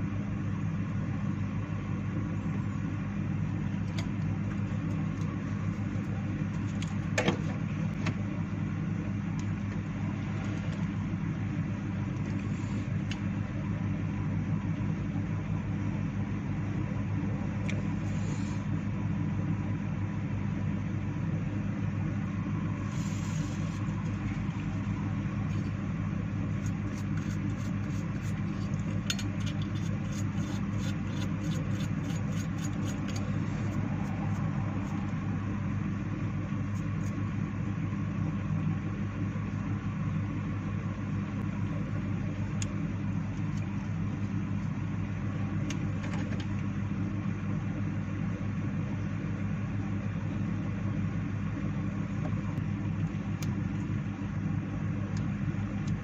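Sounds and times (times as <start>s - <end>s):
low motor hum: 0.0s - 56.0s
brush scrubbing circuit board: 26.4s - 35.0s.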